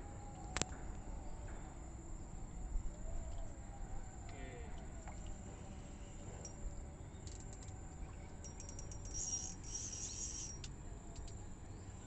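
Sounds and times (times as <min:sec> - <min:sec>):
insect chirring trill: 0:08.4 - 0:11.3.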